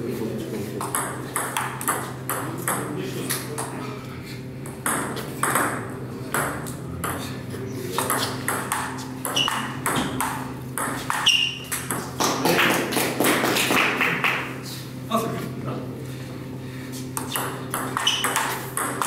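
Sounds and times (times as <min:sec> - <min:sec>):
steady low hum: 0:00.0 - 0:19.0
table tennis ball hits: 0:00.8 - 0:02.9, 0:04.6 - 0:07.3, 0:07.9 - 0:14.5, 0:17.1 - 0:19.0.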